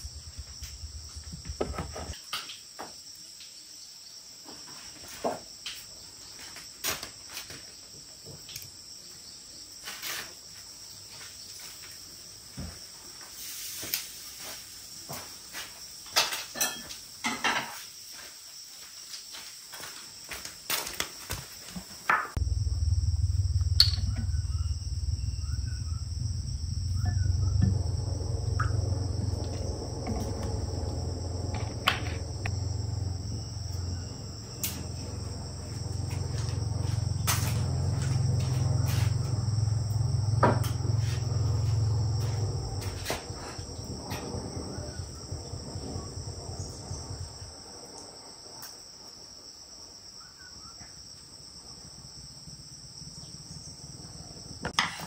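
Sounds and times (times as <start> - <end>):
loud low rumble: 0.0 - 1.6, 22.4 - 47.4
insects droning: 0.0 - 55.0.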